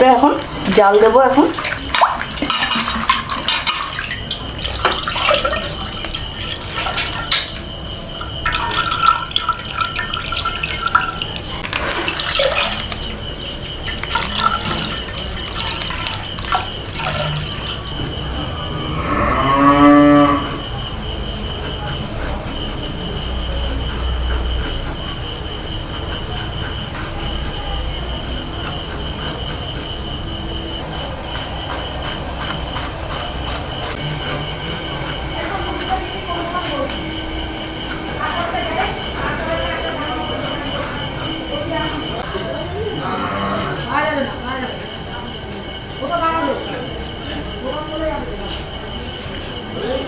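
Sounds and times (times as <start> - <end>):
milk pouring into metal pot: 8.2 - 17.8.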